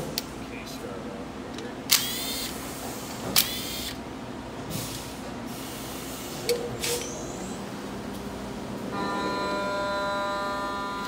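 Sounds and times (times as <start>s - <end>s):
steady low hum: 3.8s - 11.0s.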